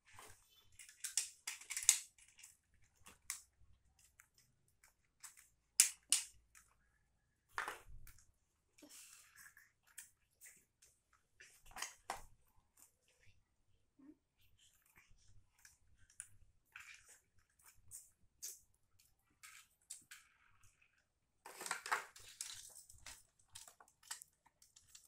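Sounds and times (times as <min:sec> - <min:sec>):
plastic packaging crackling: 0:21.4 - 0:25.0.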